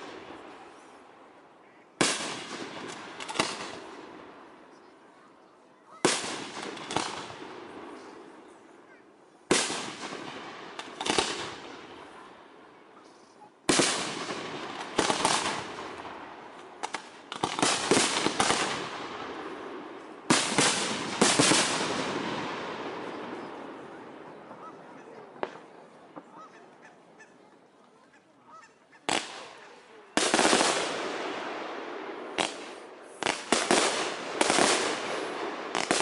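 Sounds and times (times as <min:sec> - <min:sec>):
smaller firework cracks: 0:02.0 - 0:04.5, 0:06.0 - 0:08.4, 0:09.5 - 0:12.2, 0:13.6 - 0:24.6, 0:29.1 - 0:36.0.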